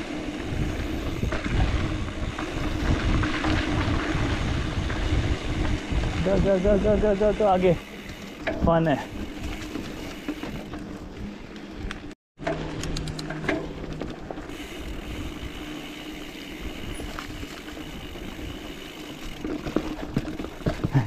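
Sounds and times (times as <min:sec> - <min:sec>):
bike clicks: 0:00.0 - 0:21.0
bike rolling and rattling: 0:00.0 - 0:21.0.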